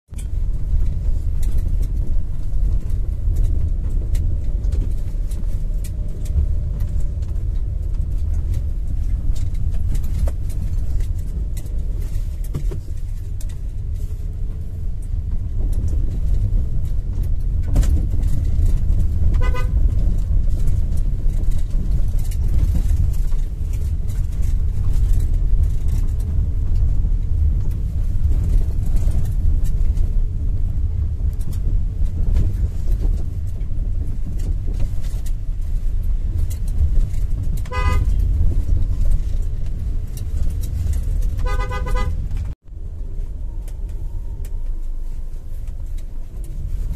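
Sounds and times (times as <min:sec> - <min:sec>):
tyre and engine rumble: 0:00.1 - 0:46.9
car horn toot: 0:19.4 - 0:19.8, 0:37.6 - 0:38.2, 0:41.4 - 0:42.2.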